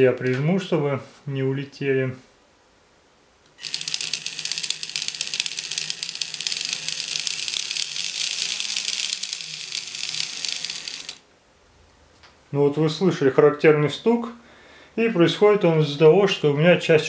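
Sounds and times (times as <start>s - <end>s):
gears rattling: 3.6s - 11.2s.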